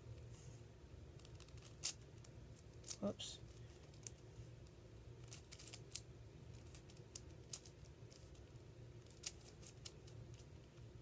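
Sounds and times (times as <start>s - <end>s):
puzzle cube plastic clicks: 5.2s - 10.6s.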